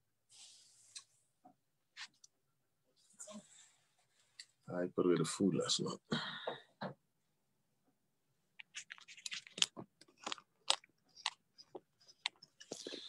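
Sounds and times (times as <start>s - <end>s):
person chewing crunchy food: 8.7s - 13.0s.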